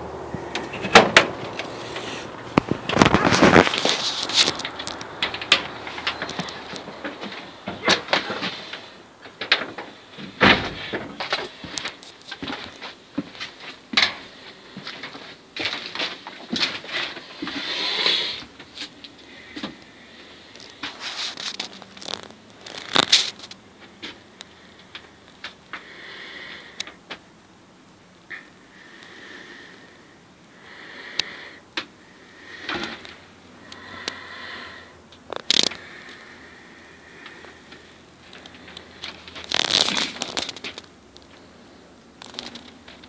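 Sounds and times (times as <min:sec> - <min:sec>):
soft breathing: 0:00.1 - 0:09.2, 0:16.8 - 0:23.1, 0:23.8 - 0:27.1, 0:28.3 - 0:42.6.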